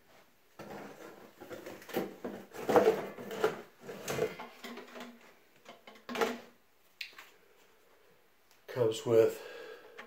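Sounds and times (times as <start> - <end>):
plastic parts knocking and scraping: 0.5 - 6.6.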